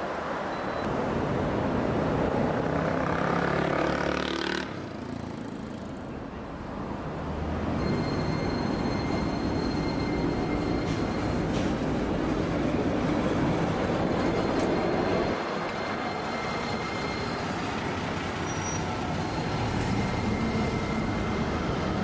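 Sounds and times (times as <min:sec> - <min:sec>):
tram electric whine: 0:07.8 - 0:22.0.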